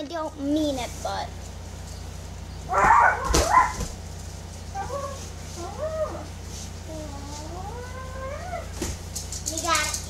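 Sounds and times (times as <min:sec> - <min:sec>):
whimpering whines: 0:04.8 - 0:08.8.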